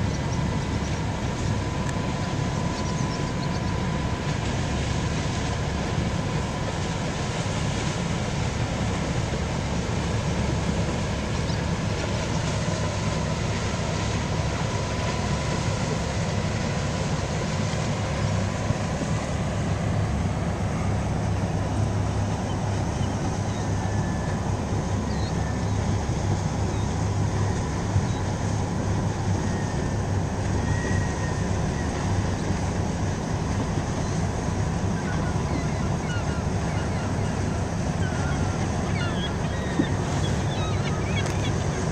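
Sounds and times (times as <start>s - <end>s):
ship engine low rumble: 0.0s - 41.9s.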